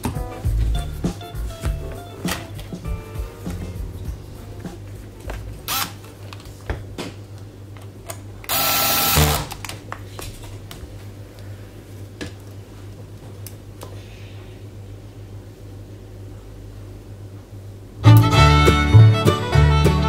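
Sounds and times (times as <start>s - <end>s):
low steady hum: 0.0s - 19.2s
small power tool whirring: 5.7s - 5.9s, 8.5s - 9.5s.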